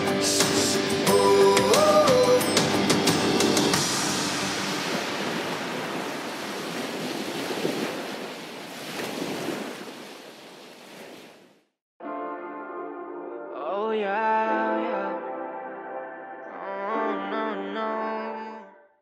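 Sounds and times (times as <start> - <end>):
song with guitar: 0.0 - 5.0
sea waves washing: 0.0 - 11.6
wind: 0.0 - 11.7.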